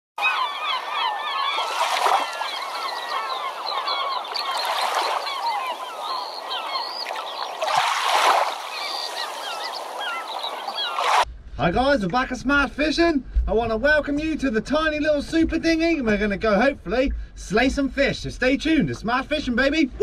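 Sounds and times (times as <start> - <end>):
flock of birds calling: 0.2 - 11.2.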